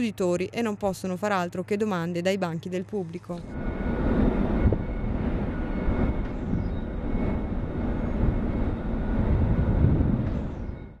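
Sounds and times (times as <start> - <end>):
low industrial rumble: 3.4 - 10.9.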